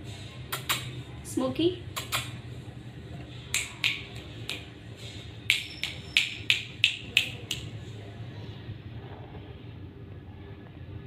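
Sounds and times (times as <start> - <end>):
person making clicking sounds: 0.5 - 0.9, 2.0 - 2.4, 3.5 - 4.7, 5.5 - 7.8.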